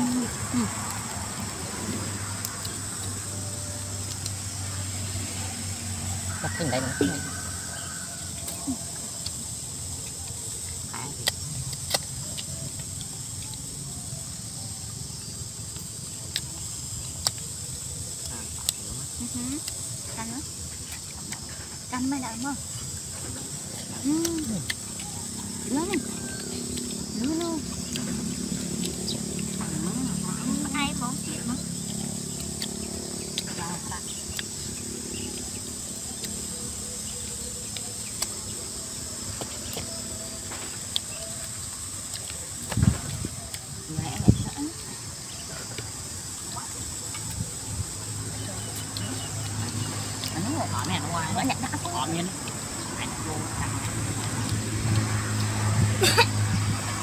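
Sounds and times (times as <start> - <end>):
crickets chirring: 0.0 - 57.0
high-pitched insect chorus: 0.0 - 57.0
person chewing food: 22.9 - 29.7, 31.8 - 33.5, 34.1 - 43.8.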